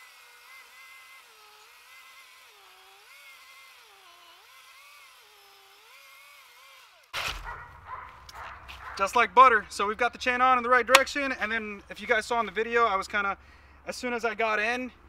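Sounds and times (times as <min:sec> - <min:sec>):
chainsaw cutting wood: 0:00.0 - 0:09.1, 0:10.9 - 0:11.2.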